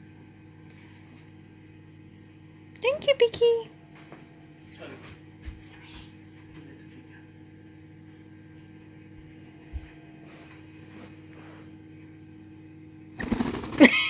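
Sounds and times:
low electrical hum: 0:00.0 - 0:14.0
loud rapid rustling burst: 0:13.2 - 0:13.9.

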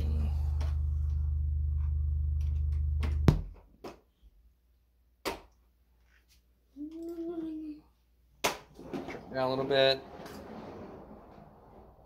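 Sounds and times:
deep low-frequency hum: 0:00.0 - 0:03.6.

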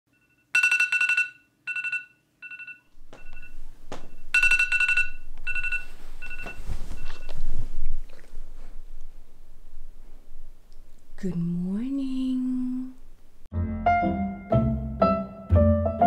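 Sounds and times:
electronic alarm beeping: 0:00.1 - 0:07.4
duvet rustling: 0:05.6 - 0:10.6.

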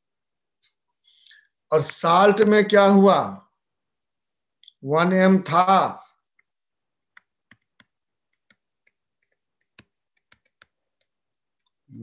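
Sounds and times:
stylus tapping on tablet: 0:06.2 - 0:11.8.

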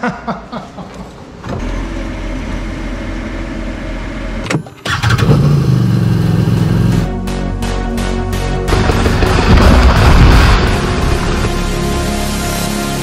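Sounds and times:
atv engine running: 0:04.9 - 0:07.1.

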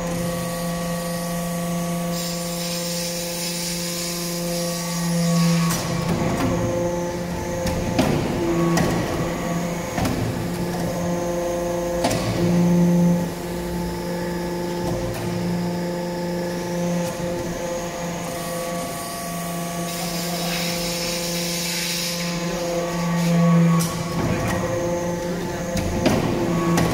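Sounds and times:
hydraulic press motor humming: 0:00.0 - 0:26.9.

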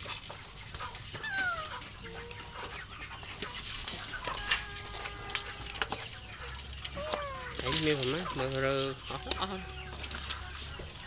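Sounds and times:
rustling: 0:00.0 - 0:11.0
chicken call: 0:01.2 - 0:02.8, 0:04.2 - 0:07.9, 0:09.1 - 0:10.5.

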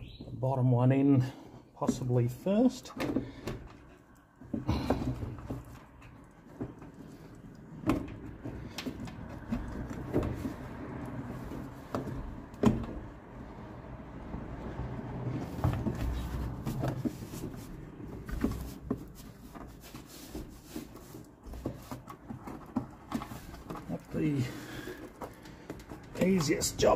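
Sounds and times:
plastic cover knocking and scraping: 0:02.8 - 0:13.2, 0:15.3 - 0:26.9.

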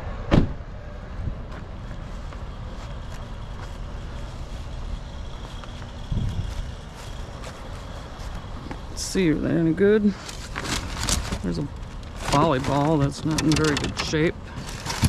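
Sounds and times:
low outdoor rumble: 0:00.0 - 0:15.0
short thump: 0:00.3 - 0:00.6.

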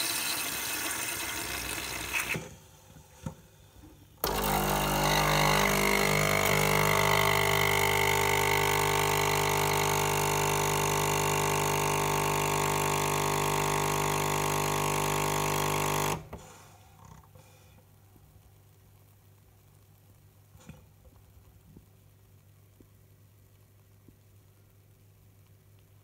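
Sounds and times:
coffee machine pump buzzing: 0:00.0 - 0:02.5, 0:04.2 - 0:16.4.

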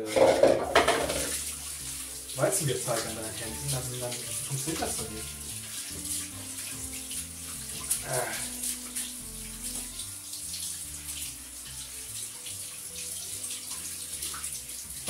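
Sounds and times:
tap running into sink: 0:00.1 - 0:08.0
hands rinsing under water: 0:00.1 - 0:15.0.

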